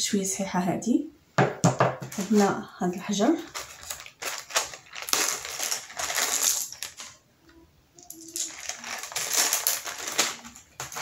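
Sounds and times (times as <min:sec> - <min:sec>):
plastic bag crinkling: 0:02.1 - 0:07.2, 0:08.0 - 0:11.0
gems clinking together: 0:05.0 - 0:07.0, 0:08.0 - 0:11.0.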